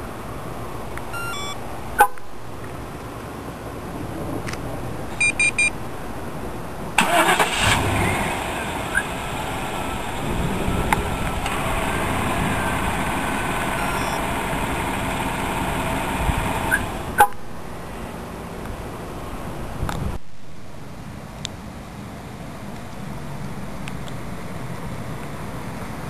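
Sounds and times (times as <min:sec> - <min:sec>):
short beeps: 0:01.2 - 0:01.6, 0:05.2 - 0:05.7, 0:13.8 - 0:14.2
car engine idling: 0:07.0 - 0:17.2.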